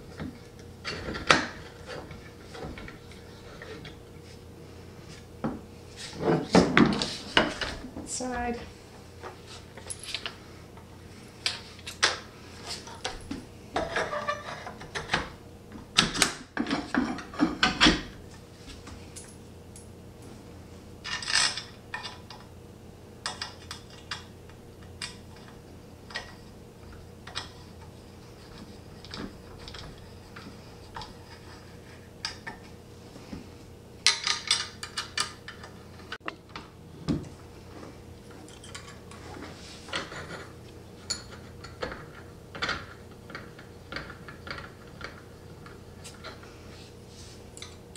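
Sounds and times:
metal keys and bolts clinking: 9.8s - 10.3s.

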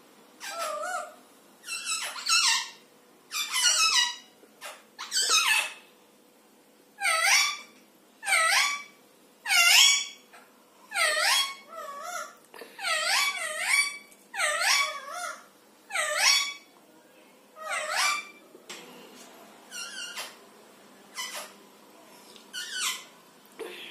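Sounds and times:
parakeets squawking: 0.4s - 5.8s, 7.0s - 16.7s, 17.6s - 18.4s, 19.7s - 20.5s, 21.1s - 21.6s, 22.5s - 23.1s.

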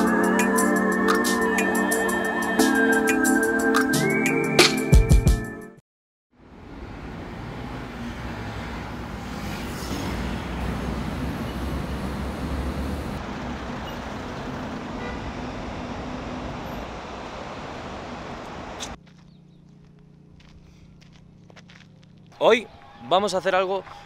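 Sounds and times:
road traffic rumble: 6.4s - 22.4s.

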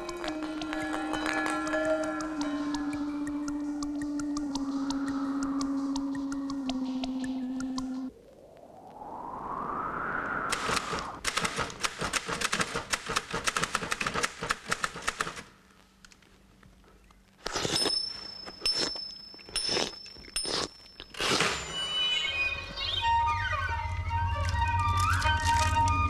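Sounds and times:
crackling clicks: 0.0s - 9.4s, 10.5s - 17.6s
steady high whistle: 4.6s - 11.2s.

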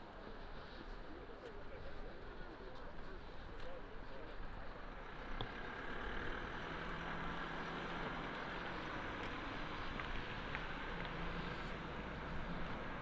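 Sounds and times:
outdoor noise: 0.0s - 13.0s
vehicle engine running: 4.3s - 13.0s.

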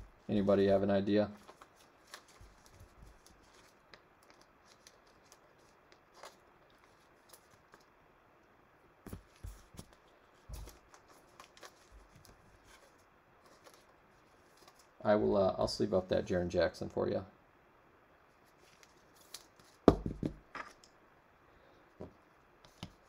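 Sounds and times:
card handling clicks and rustles: 1.4s - 7.9s, 9.1s - 15.0s.

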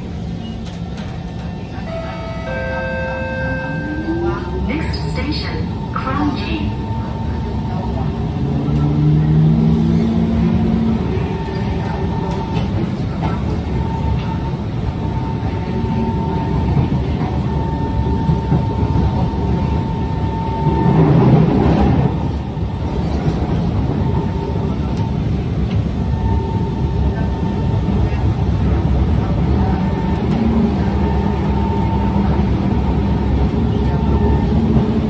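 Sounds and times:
train wheels rumbling on rail: 0.0s - 35.0s.

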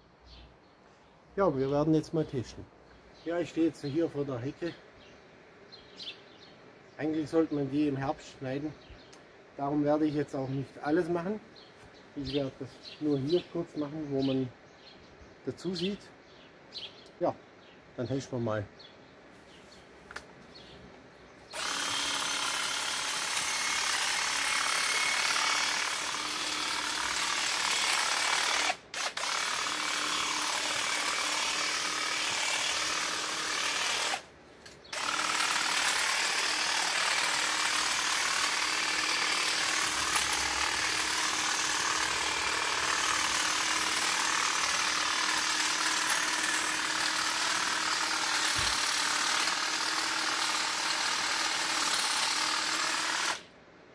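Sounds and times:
hedge trimmer buzzing: 21.5s - 34.3s, 34.9s - 53.4s.

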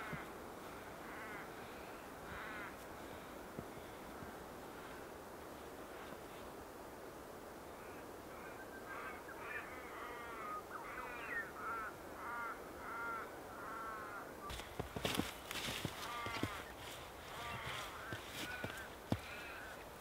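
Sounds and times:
crow cawing: 0.0s - 3.3s, 7.8s - 14.4s, 15.0s - 19.8s
faint outdoor hush: 0.0s - 20.0s.

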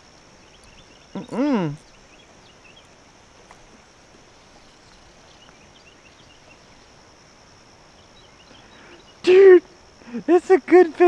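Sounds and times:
faint bird chirps: 0.0s - 3.2s, 7.9s - 9.6s
insect drone: 0.0s - 11.0s.

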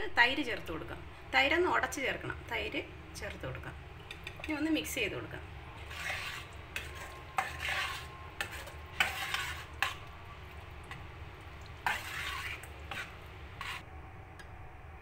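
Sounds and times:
spoon scraping thick mixture: 5.8s - 10.1s, 10.8s - 13.9s.

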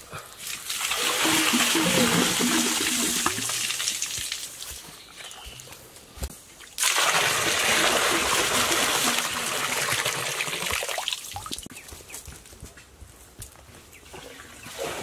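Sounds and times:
water splashing into pool: 0.4s - 4.8s, 6.6s - 11.7s.

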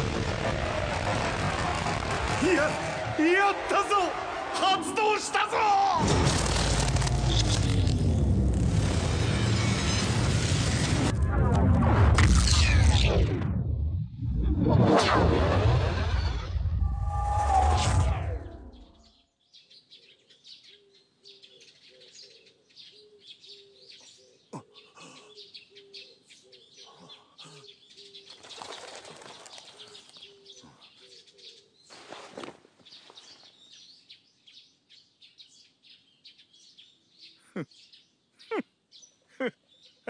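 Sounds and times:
small birds chirping: 18.4s - 40.0s
wings flapping: 28.3s - 30.2s.

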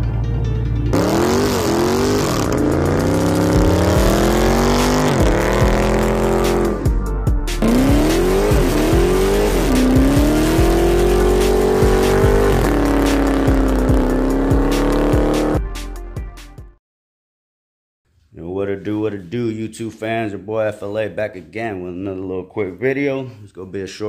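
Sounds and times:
car engine revving hard: 0.9s - 6.9s, 7.5s - 15.6s.

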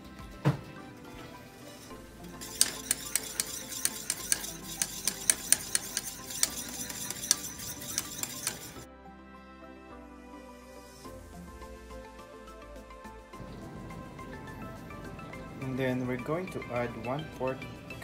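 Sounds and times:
soft background music: 0.0s - 18.0s
whisk clicking against saucepan: 1.8s - 8.8s.

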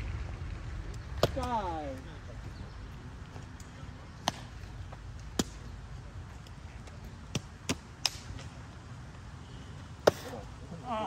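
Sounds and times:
sharp smacks: 4.2s - 4.6s, 5.2s - 5.7s, 7.3s - 8.5s, 10.0s - 10.4s.

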